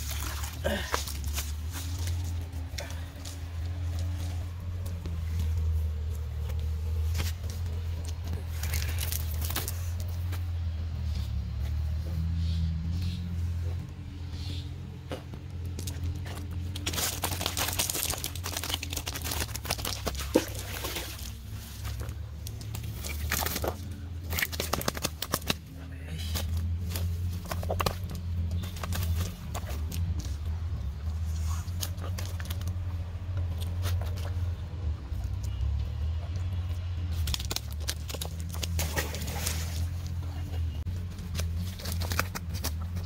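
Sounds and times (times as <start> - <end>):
low motor hum: 0.0 - 43.0
net crackling and rustling: 16.6 - 25.6.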